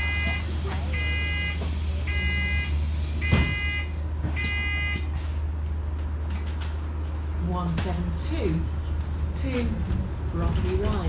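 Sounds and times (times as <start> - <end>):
bus door warning beeps: 0.0 - 5.1
bus engine humming: 0.0 - 11.0.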